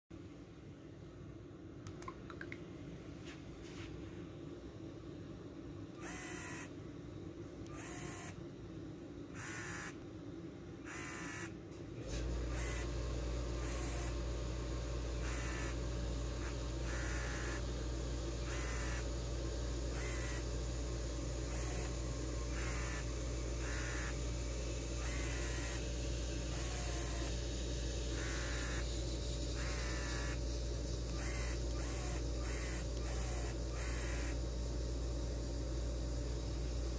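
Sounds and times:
steady low hum: 0.1 - 36.9
small electric motors whirring: 6.0 - 6.7, 7.7 - 8.4, 9.4 - 10.0, 10.9 - 34.9.

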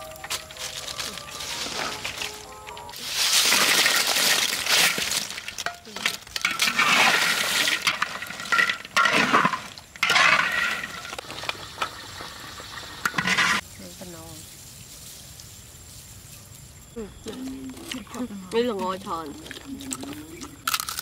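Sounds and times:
crunchy rattle of fried food in wok: 3.1 - 13.6.

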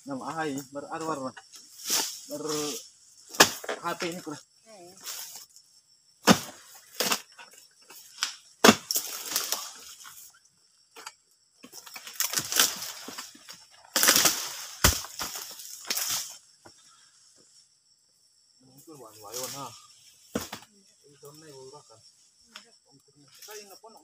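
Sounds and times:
fronds rustling: 0.0 - 10.9, 11.6 - 17.8, 19.0 - 23.8
pole chopping with sharp cracks: 3.3 - 3.8, 6.2 - 7.3, 8.2 - 9.6, 14.0 - 16.2.

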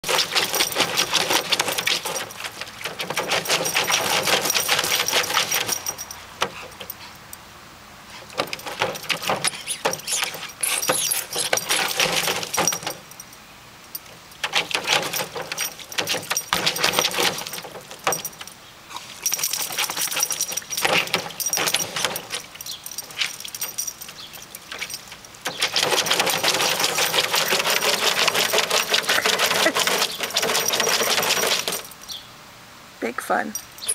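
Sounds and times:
dog splashing in shallow water: 0.0 - 5.8, 19.0 - 31.9.

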